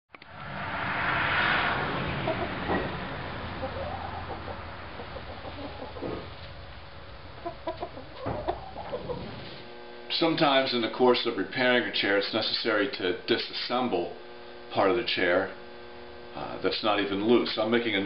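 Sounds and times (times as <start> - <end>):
low steady hum: 0.1 - 18.0
hen clucking: 2.1 - 6.6, 7.2 - 9.5.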